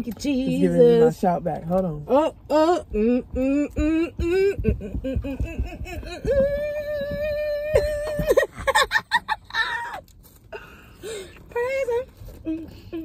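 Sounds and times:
woman vocalizing: 2.1s - 8.5s
woman laughing: 3.9s - 10.0s.

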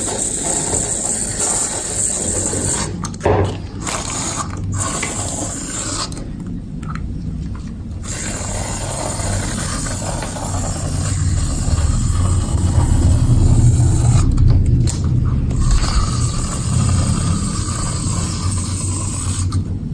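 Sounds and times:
low rumble: 9.0s - 19.8s.

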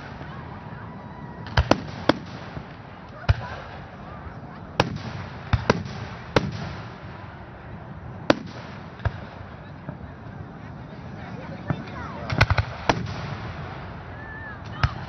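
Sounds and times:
firework shells bursting: 1.4s - 4.0s, 11.7s - 15.0s.

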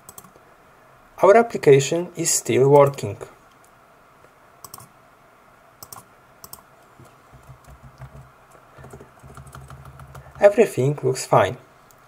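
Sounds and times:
keyboard keystrokes: 0.0s - 0.4s, 4.6s - 4.9s, 5.8s - 6.6s, 7.4s - 10.4s.

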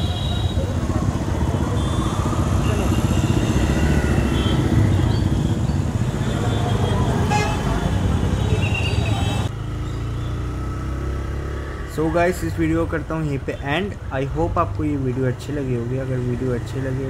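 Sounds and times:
motorcycle engine rumble: 0.0s - 14.2s
vehicle horn toots: 1.7s - 4.9s, 6.2s - 9.5s.

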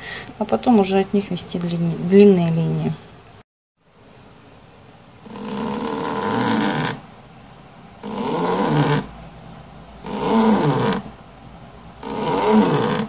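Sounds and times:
person snoring: 12.0s - 13.0s.

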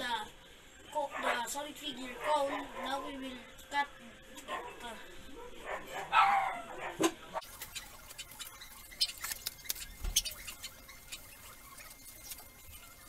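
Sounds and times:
paper rustling: 7.4s - 13.0s
scissors snipping paper: 7.4s - 13.0s.

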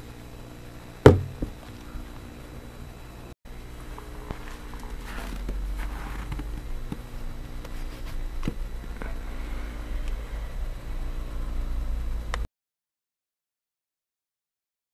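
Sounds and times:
glass jar knocks: 1.1s - 1.6s.

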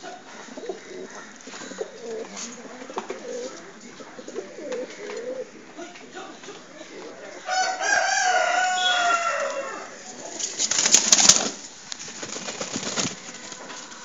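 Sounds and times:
rooster crowing: 7.4s - 10.1s, 13.1s - 14.0s
pigeon wings flapping: 10.4s - 14.0s.

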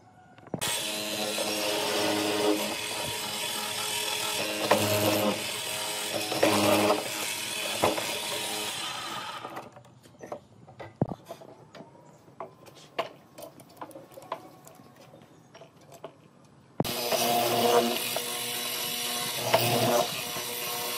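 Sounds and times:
mortiser motor whine and cutting: 0.6s - 9.7s, 16.8s - 20.9s.

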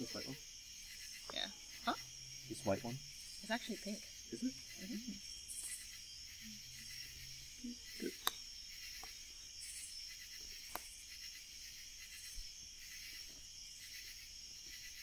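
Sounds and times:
night insects chirring: 0.0s - 15.0s.

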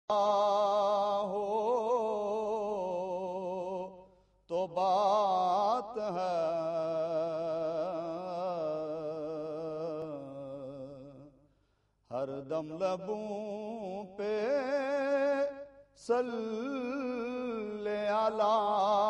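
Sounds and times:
man singing unaccompanied: 0.1s - 11.3s, 12.1s - 19.0s.

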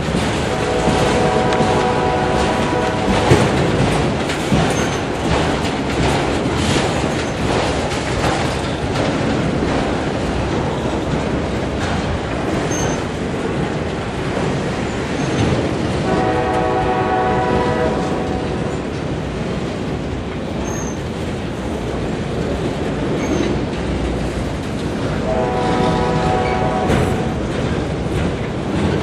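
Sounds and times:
freight cars rumbling and clattering: 0.0s - 29.0s
train horn: 0.4s - 3.8s, 16.0s - 18.8s, 25.2s - 27.5s.

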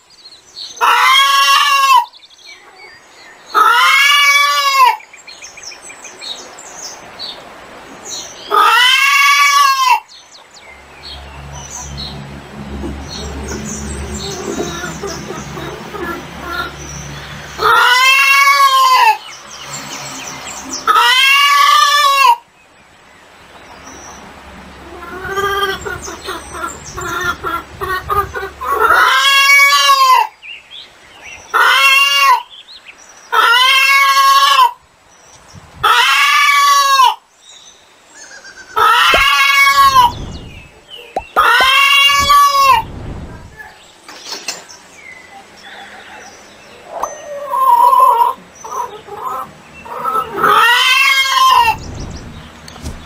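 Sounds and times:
chicken crying out: 0.8s - 2.1s, 3.5s - 5.0s, 8.5s - 10.1s, 17.6s - 19.3s, 20.8s - 22.4s, 24.9s - 30.4s, 31.5s - 32.5s, 33.3s - 34.8s, 35.8s - 37.2s, 38.7s - 40.4s, 41.4s - 42.9s, 46.8s - 51.9s
soft chicken calls: 0.8s - 2.9s, 3.5s - 5.0s, 17.4s - 19.2s, 20.8s - 22.4s, 31.5s - 32.5s, 33.3s - 34.8s, 38.2s - 43.8s, 45.3s - 53.0s.

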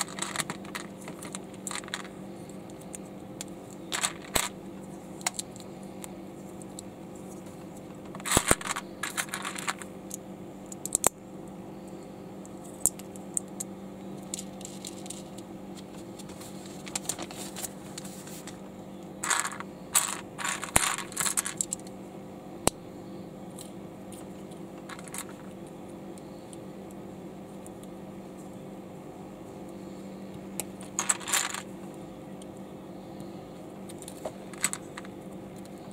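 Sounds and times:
plastic bricks clicking and clattering: 0.0s - 2.1s, 3.9s - 4.6s, 8.0s - 9.9s, 19.2s - 21.8s, 24.8s - 25.5s, 30.9s - 31.6s, 34.0s - 35.1s
faint steady hum: 0.0s - 35.9s.

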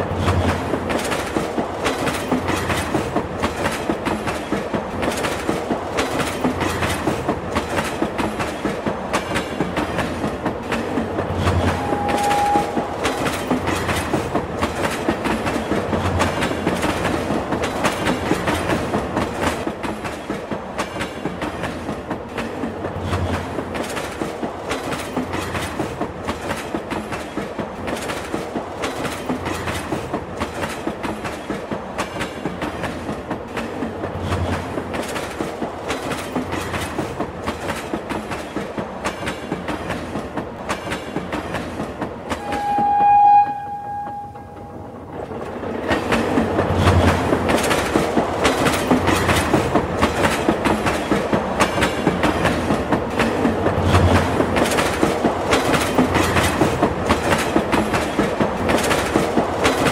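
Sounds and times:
train wheels clattering over rail joints: 0.0s - 42.5s, 45.0s - 59.9s
steady high tone: 11.8s - 12.9s, 42.4s - 45.0s.

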